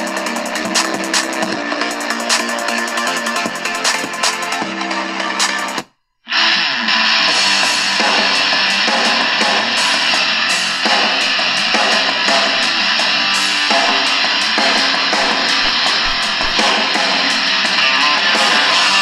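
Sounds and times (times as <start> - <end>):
rock music on small radio speaker: 15.2 - 16.7.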